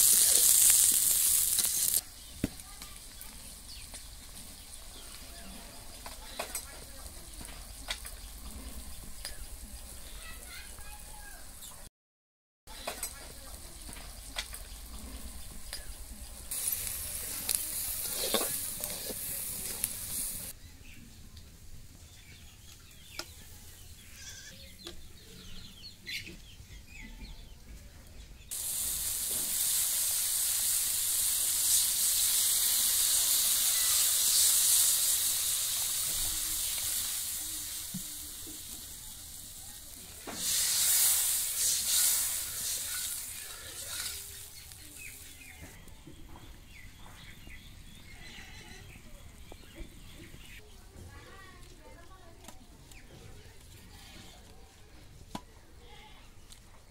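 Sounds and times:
water hissing in hot pan: 0.0 - 11.6, 12.7 - 20.6, 28.5 - 45.7
vegetables sizzling in a pan: 0.0 - 11.8, 12.7 - 20.6, 28.5 - 45.7
metal spatula scraping and clinking: 16.6 - 19.9, 41.9 - 44.6.

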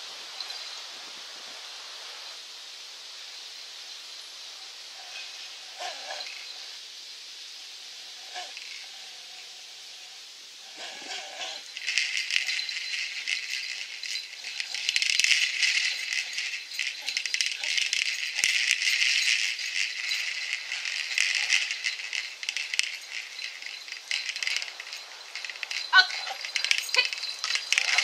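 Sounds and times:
ball rattling and rustling: 8.2 - 9.0, 10.7 - 28.0.

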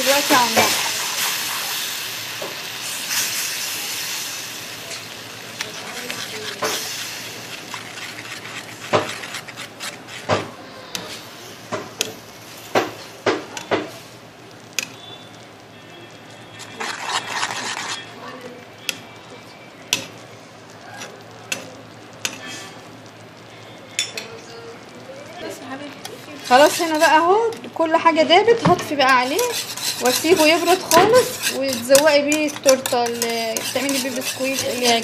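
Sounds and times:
sauce sizzling in a pan: 0.0 - 35.0
metal utensil clinking on pan: 28.8 - 35.0.

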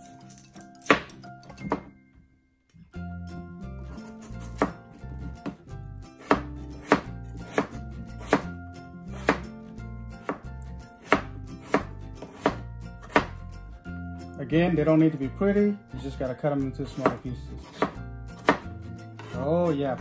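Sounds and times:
knife chopping on cutting board: 0.1 - 1.9, 4.0 - 5.6, 6.2 - 9.5, 10.2 - 13.4, 16.8 - 20.0.

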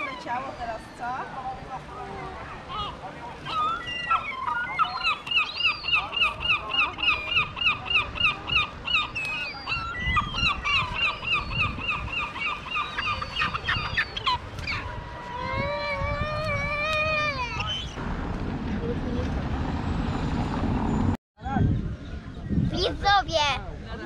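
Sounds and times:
gulls calling harshly: 2.0 - 18.0.

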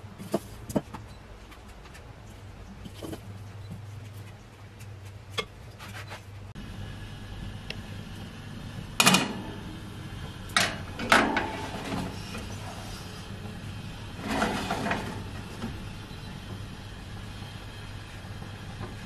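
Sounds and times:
steady low hum: 0.0 - 19.0
metal pan clanking on rack: 10.6 - 12.2
metal pan scraping slide: 10.7 - 13.4, 14.1 - 15.8.

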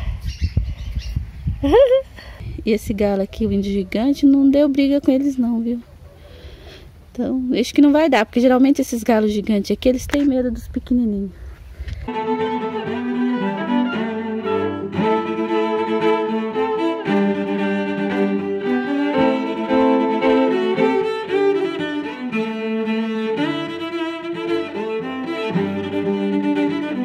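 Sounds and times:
instrumental background music: 12.1 - 27.0.

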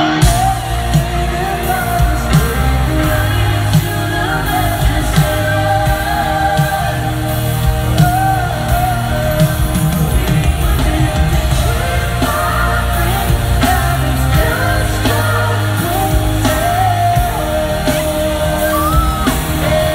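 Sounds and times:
live pop rock band: 0.0 - 19.9
man singing lead: 0.0 - 19.9.

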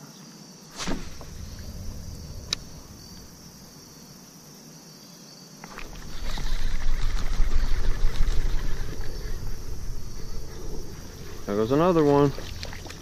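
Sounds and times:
crickets chirping: 0.0 - 13.0
sharp swish: 0.7 - 1.4.

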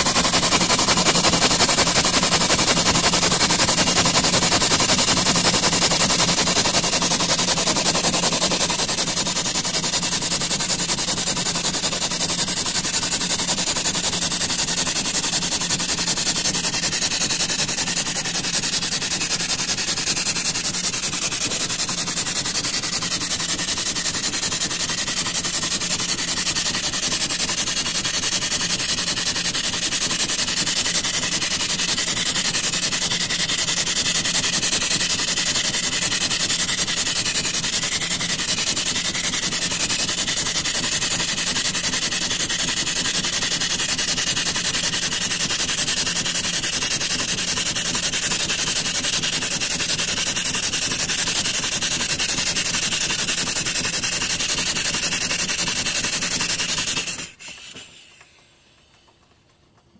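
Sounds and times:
steam pump hissing: 0.0 - 59.1.

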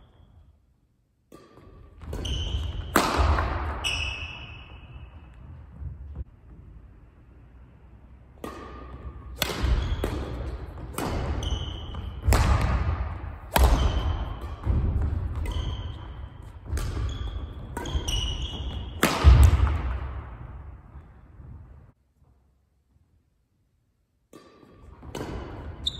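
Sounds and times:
sneaker squeaks: 0.0 - 0.6, 1.6 - 6.2, 8.8 - 12.7, 13.6 - 19.5, 25.6 - 25.9
racket striking shuttlecock: 1.3 - 5.4, 8.3 - 20.7, 24.3 - 25.9.

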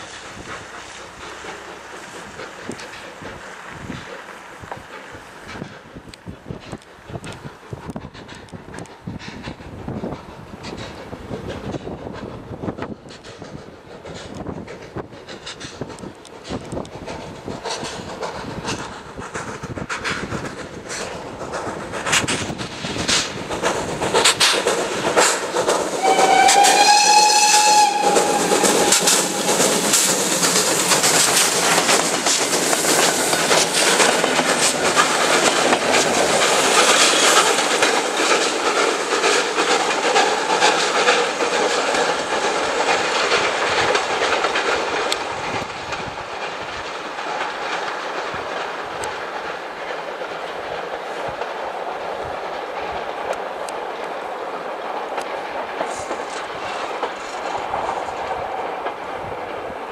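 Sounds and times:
steam locomotive exhaust beats: 0.0 - 59.9
train wheels clicking over rail joints: 0.0 - 59.9
steam locomotive whistle: 26.0 - 29.6.

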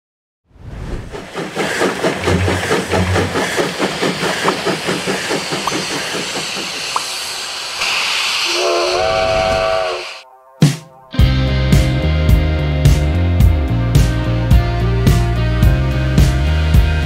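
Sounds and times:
steam hissing: 1.0 - 10.2
steam locomotive chuffing: 1.0 - 10.2
multi-tone steam whistle: 6.9 - 10.2.

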